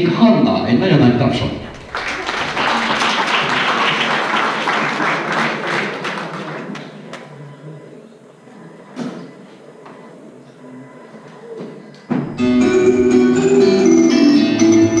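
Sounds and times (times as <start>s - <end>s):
audience applause: 1.6s - 7.3s.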